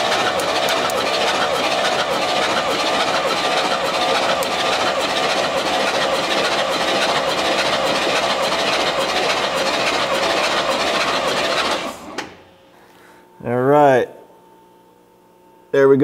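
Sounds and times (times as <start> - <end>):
engine cranking without firing: 0.0 - 12.4.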